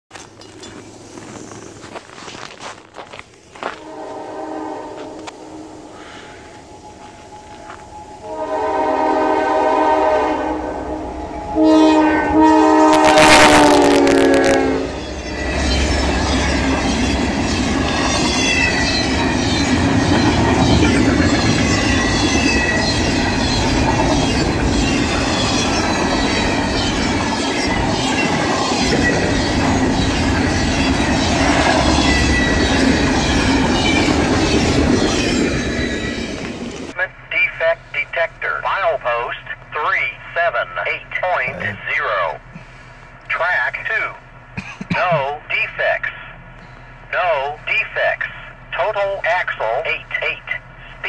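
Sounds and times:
train wheels rumbling: 0:00.1 - 0:37.3
train horn blasts: 0:03.6 - 0:24.8.

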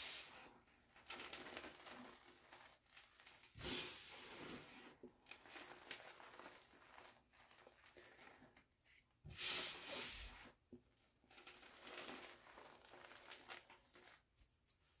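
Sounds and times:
crisp crackles: 0:05.3 - 0:08.4, 0:11.3 - 0:14.5
hands crumbling powder: 0:11.4 - 0:15.0.

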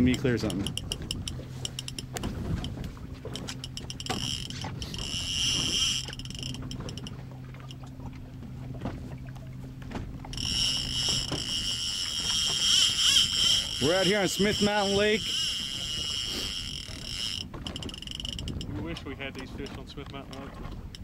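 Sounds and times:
fishing reel clicking: 0:00.0 - 0:07.2, 0:10.3 - 0:18.8
boat engine idling hum: 0:00.0 - 0:21.0.

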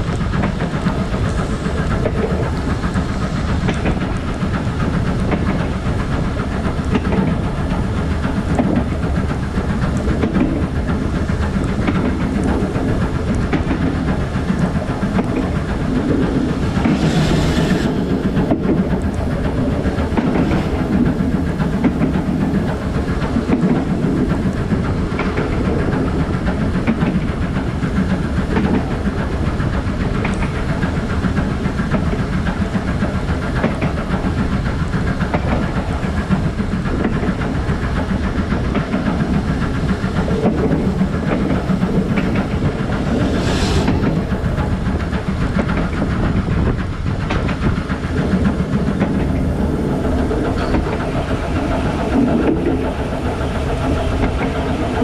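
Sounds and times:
steam hissing: 0:00.0 - 0:55.0
steam locomotive rumble: 0:00.0 - 0:55.0.

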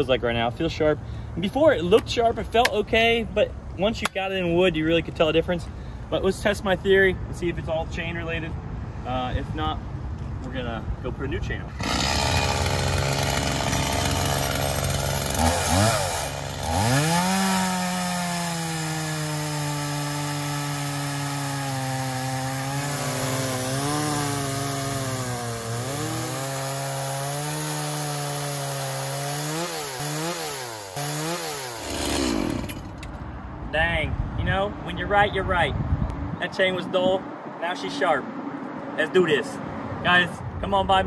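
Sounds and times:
chainsaw cutting log: 0:11.8 - 0:33.0.

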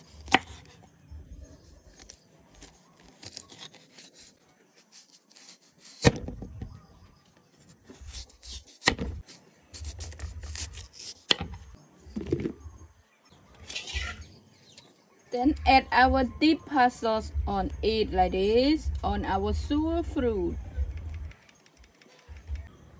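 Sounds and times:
knife rubbing and scraping fruit: 0:00.0 - 0:00.8, 0:01.6 - 0:06.1, 0:07.6 - 0:11.7, 0:13.6 - 0:14.3.

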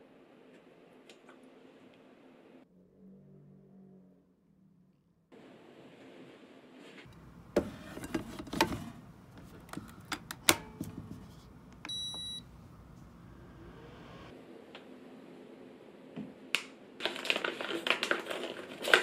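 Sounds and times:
short electronic beep: 0:11.9 - 0:12.5.

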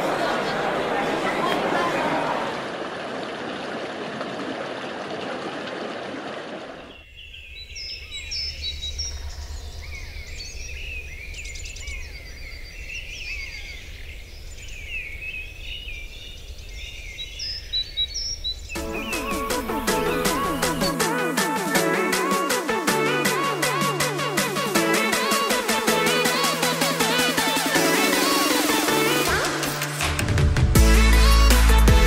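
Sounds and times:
small birds chirping: 0:06.8 - 0:21.0.

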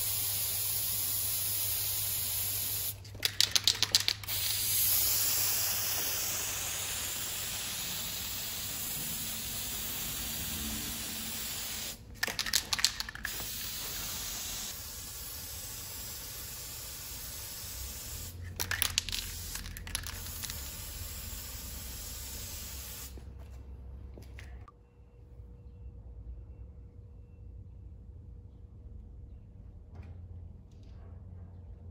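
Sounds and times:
spray paint hissing: 0:00.0 - 0:23.2
rattle of clicks: 0:03.0 - 0:04.5, 0:12.2 - 0:13.5, 0:18.4 - 0:20.6.

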